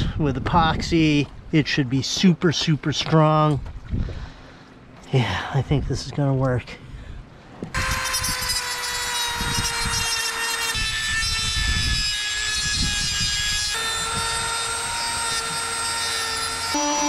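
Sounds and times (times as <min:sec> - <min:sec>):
rotary tool grinding: 0:07.7 - 0:17.0.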